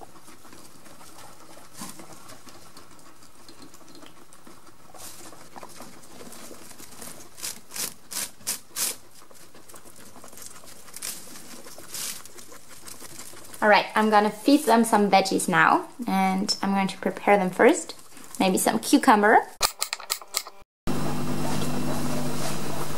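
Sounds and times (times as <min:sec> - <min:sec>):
animal rustling in dry hay: 0:04.2 - 0:15.7, 0:17.3 - 0:18.5.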